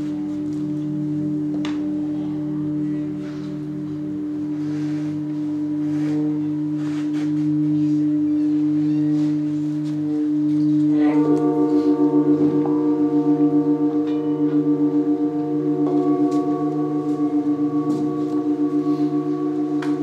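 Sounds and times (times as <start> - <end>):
singing bowls ringing: 0.0 - 20.0
singing bowl struck with mallet: 10.6 - 20.0.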